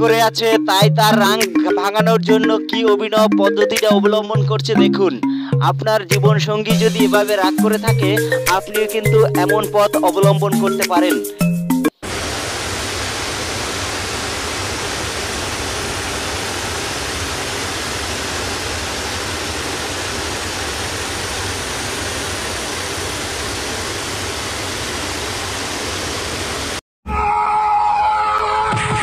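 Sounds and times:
steady rushing hiss: 0:12.0 - 0:26.8.

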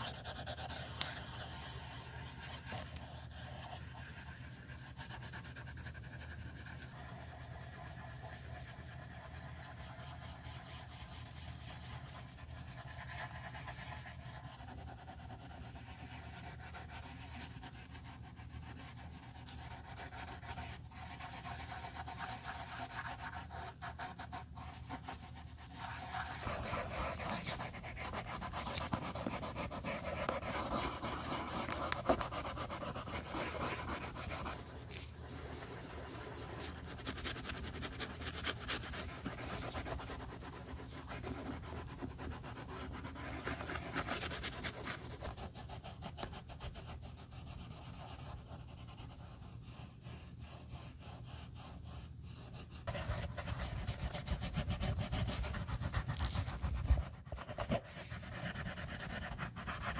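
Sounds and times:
cloth pad rubbing leather: 0:11.3 - 0:45.7, 0:48.3 - 0:59.9.

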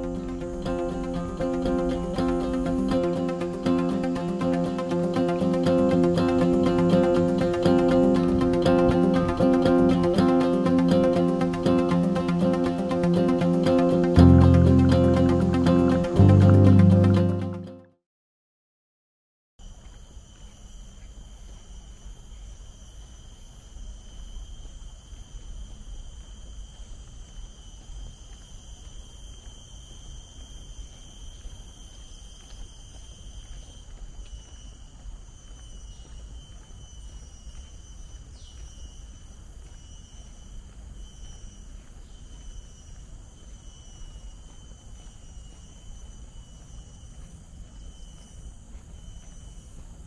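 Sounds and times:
insect chorus: 0:00.0 - 0:17.4, 0:19.6 - 0:50.0.

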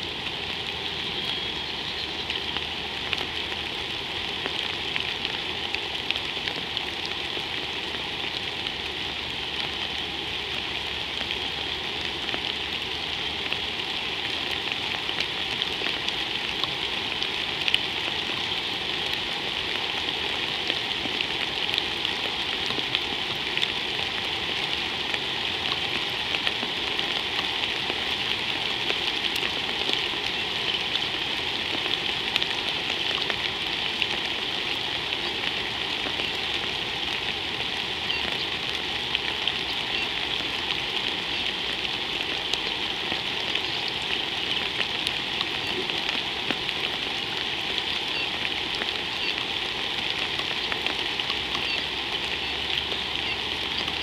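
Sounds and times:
rain falling on water and ground: 0:00.0 - 0:54.0.

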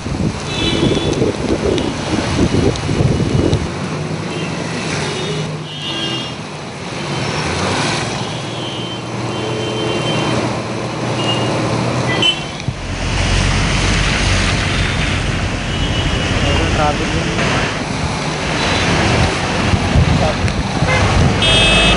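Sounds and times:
tyres rushing through water: 0:00.0 - 0:21.9
vehicle engines running: 0:10.0 - 0:21.9.

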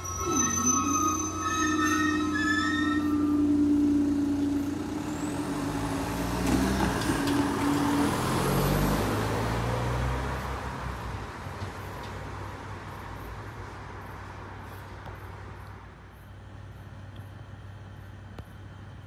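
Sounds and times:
car driving past: 0:03.0 - 0:10.9.

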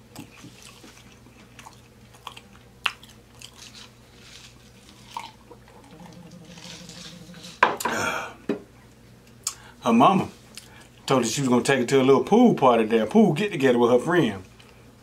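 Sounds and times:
chewing food: 0:00.0 - 0:07.4.

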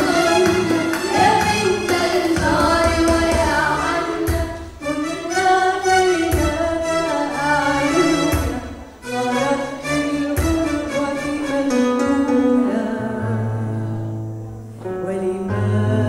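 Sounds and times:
low beat: 0:00.0 - 0:04.8, 0:06.2 - 0:09.5
girls singing together: 0:00.0 - 0:12.8.

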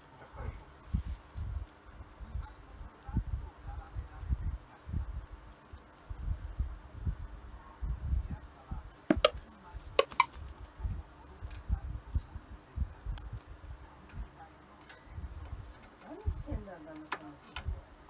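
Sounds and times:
bird beak clicking on wire rack: 0:10.0 - 0:10.4.

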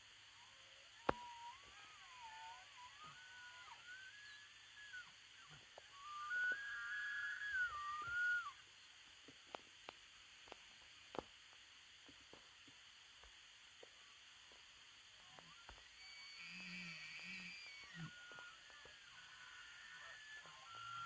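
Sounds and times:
elk bugling: 0:01.0 - 0:08.6, 0:15.4 - 0:21.0.

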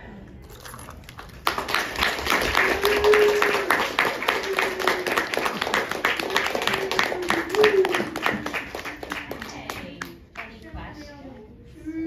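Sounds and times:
children clapping: 0:01.1 - 0:10.6.

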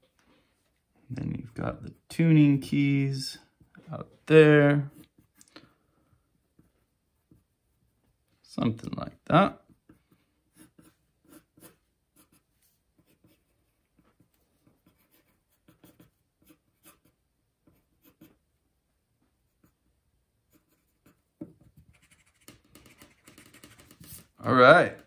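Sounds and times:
pencil scratching on paper: 0:09.7 - 0:18.4, 0:20.5 - 0:24.3.

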